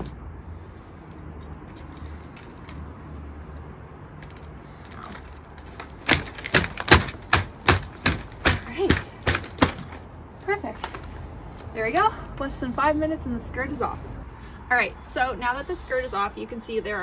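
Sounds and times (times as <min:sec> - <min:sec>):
staples snapping out: 0:04.1 - 0:10.0.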